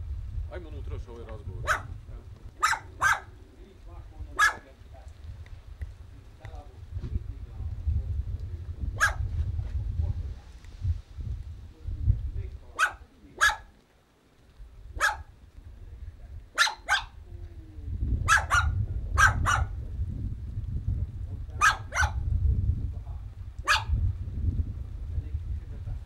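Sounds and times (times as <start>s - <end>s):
wind rumble on microphone: 0.0s - 13.8s, 14.4s - 26.0s
dog barking: 1.6s - 1.9s, 2.6s - 3.3s, 4.4s - 4.7s, 9.0s - 9.3s, 12.8s - 13.7s, 15.0s - 15.3s, 16.5s - 17.2s, 18.2s - 19.8s, 21.6s - 22.2s, 23.6s - 24.0s.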